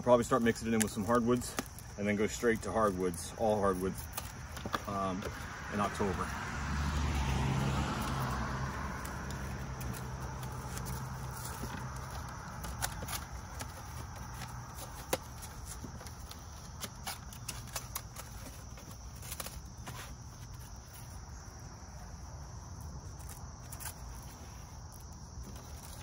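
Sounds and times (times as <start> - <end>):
high insect chirr: 0.0 - 26.0
passing vehicle rumble: 4.3 - 14.8.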